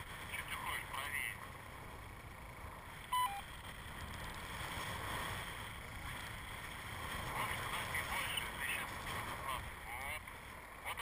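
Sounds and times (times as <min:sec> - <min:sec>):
two-note electronic beep: 0:03.1 - 0:03.4.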